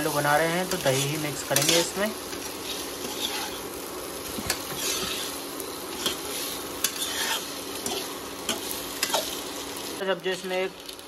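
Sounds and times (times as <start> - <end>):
potatoes sizzling in oil: 0.0 - 11.0
spatula stirring and scraping: 0.2 - 9.5.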